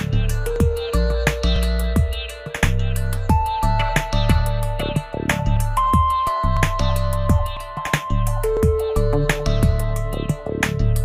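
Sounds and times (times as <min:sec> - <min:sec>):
background music with drum hits: 0:00.0 - 0:11.0.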